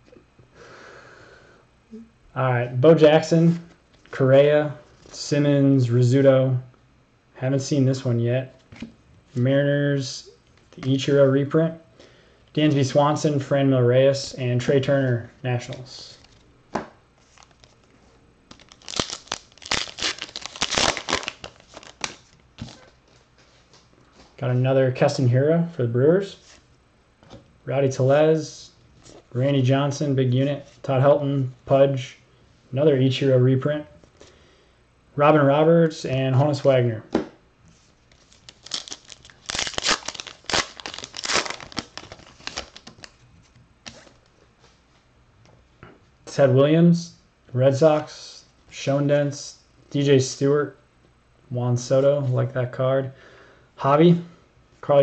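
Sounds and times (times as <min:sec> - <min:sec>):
foil wrapper tearing and crinkling: 0:18.5 - 0:22.8, 0:38.2 - 0:43.2.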